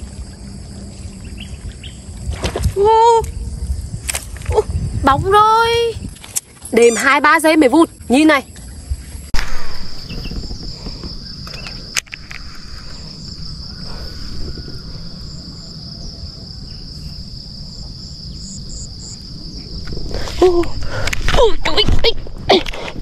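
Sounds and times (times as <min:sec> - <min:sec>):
insects chorus: 0:00.0 - 0:23.0.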